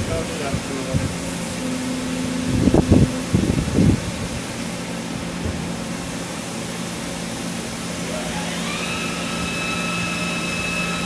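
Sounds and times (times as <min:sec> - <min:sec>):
lathe machine hum: 0:00.0 - 0:11.0
loud mechanical clunks: 0:05.2 - 0:06.0.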